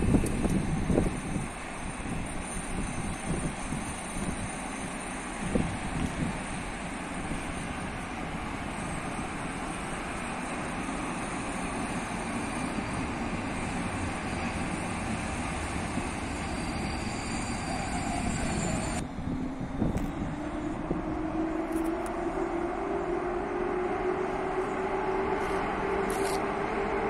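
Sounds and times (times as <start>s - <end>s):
train wheels rumbling on rails: 0.0s - 27.0s.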